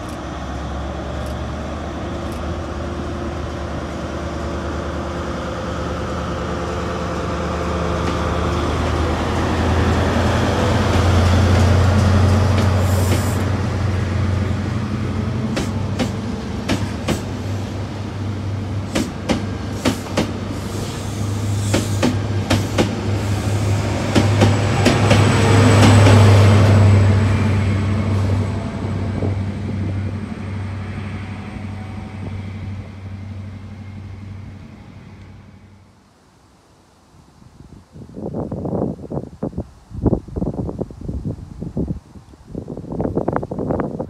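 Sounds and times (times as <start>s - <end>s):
train wheels clicking over rail joints: 0.0s - 4.0s, 7.9s - 14.4s, 15.0s - 17.8s, 18.7s - 26.8s.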